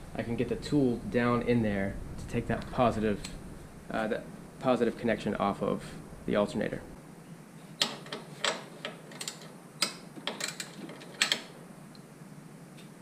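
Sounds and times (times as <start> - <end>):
clicks and taps on parts: 7.8 - 11.5.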